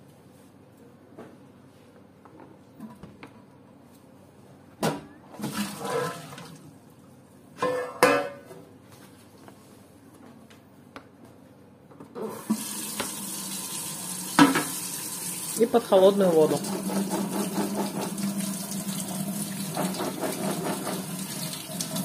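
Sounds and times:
tap water running into sink: 12.3 - 15.6, 16.3 - 22.0
metal utensils clattering in sink: 19.7 - 21.4.

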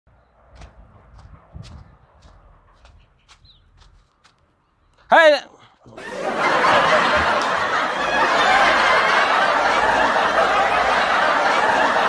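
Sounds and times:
audience laughter: 6.0 - 12.0.

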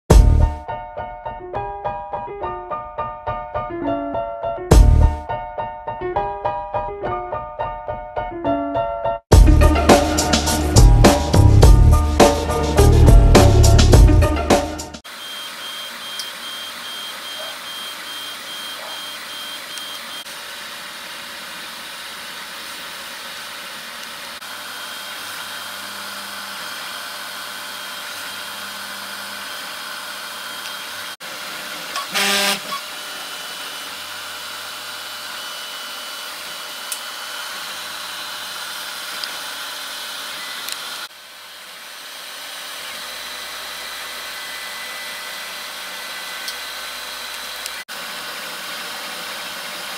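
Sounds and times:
stepper motors whining: 15.1 - 41.1, 41.7 - 49.9
fans whirring: 15.1 - 49.9.

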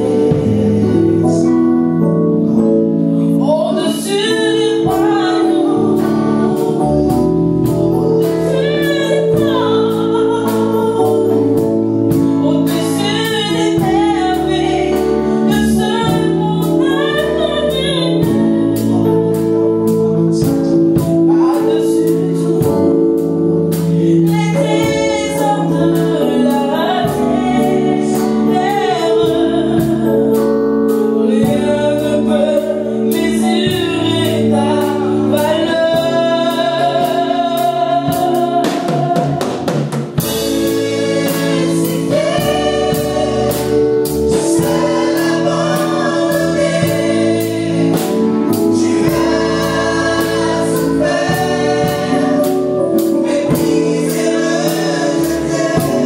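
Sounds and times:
woman singing lead vocal: 0.0 - 1.6, 3.2 - 7.3, 8.2 - 19.3, 23.8 - 56.0
held instrumental chords: 0.0 - 56.0
backing singers: 35.4 - 56.0.

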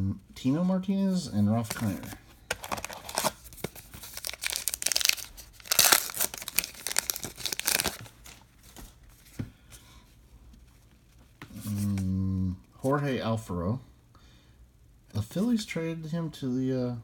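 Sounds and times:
wrapper tearing and crinkling: 1.7 - 8.4.

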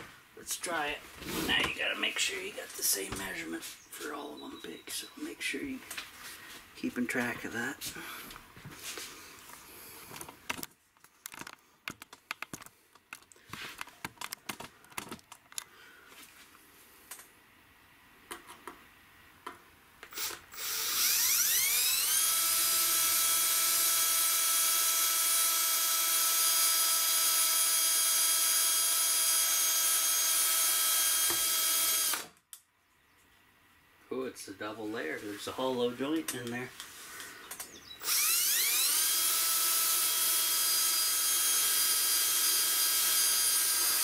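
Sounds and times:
handling clicks and knocks: 10.1 - 15.7
cordless drill whining: 20.1 - 32.4, 38.0 - 44.0.

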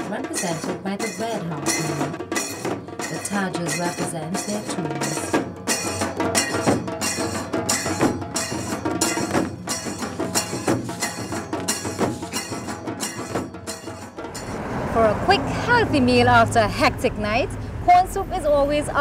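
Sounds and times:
drums beaten with sticks: 0.0 - 14.7.

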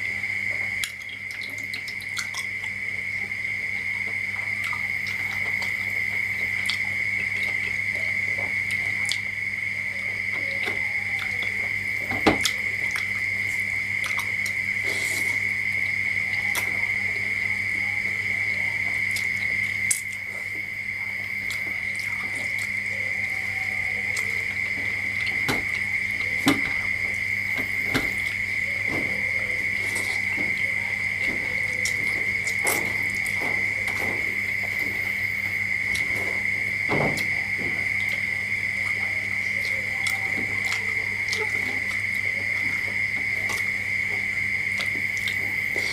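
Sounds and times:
high-pitched whine: 0.0 - 45.9
chewing smacks: 3.8 - 9.3, 12.4 - 16.9, 24.0 - 36.6, 37.2 - 45.9.

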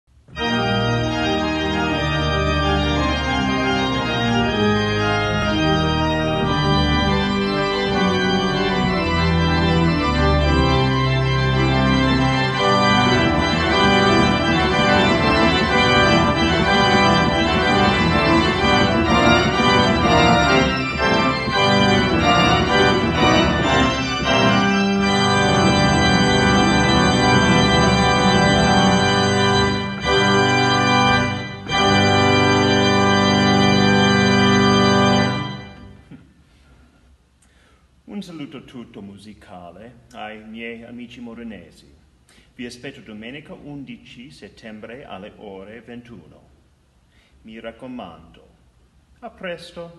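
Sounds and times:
pipe organ playing: 0.3 - 36.2.

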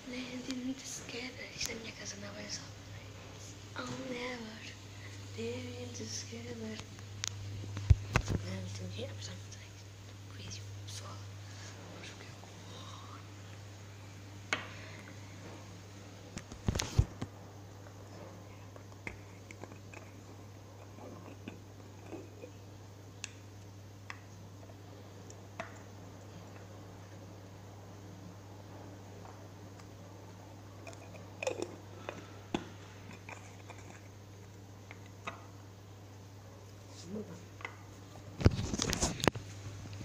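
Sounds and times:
steady low hum: 0.0 - 40.0
person chewing food: 30.8 - 32.4, 33.0 - 35.2.

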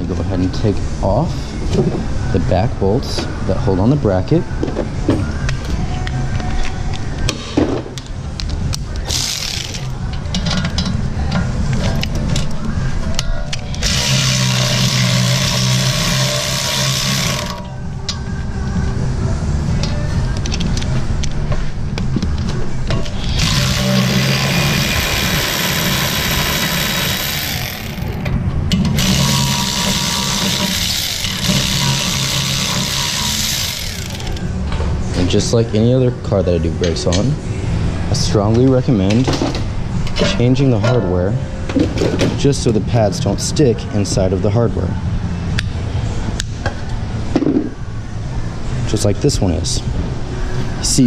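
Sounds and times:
steady low hum: 0.0 - 51.0
pneumatic air ratchet: 9.0 - 10.7, 13.7 - 17.7, 23.0 - 34.4.

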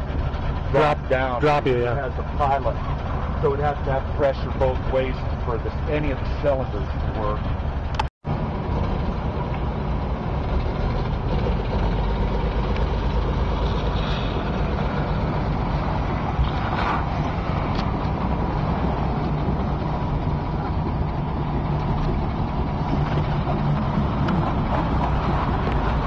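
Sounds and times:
truck engine idling: 0.0 - 26.0.

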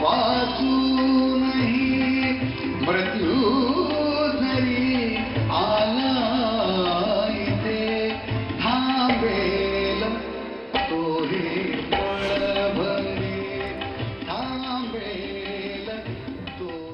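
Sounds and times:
acoustic guitar: 0.0 - 16.9
keyboard: 0.0 - 16.9
man singing ornamented melody: 0.0 - 16.9
hand-drum beats: 10.8 - 16.9.

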